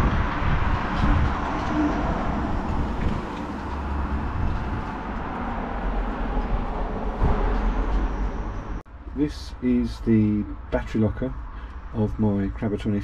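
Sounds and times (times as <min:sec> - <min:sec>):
wind buffeting microphone: 0:00.0 - 0:07.9.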